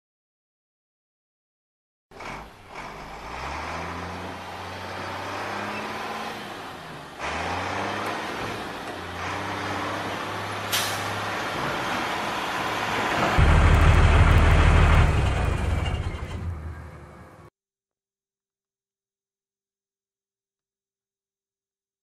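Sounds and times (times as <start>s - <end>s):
truck engine revving: 2.1s - 17.5s
air brake hiss: 10.7s - 11.2s
loud low drone: 13.4s - 16.0s.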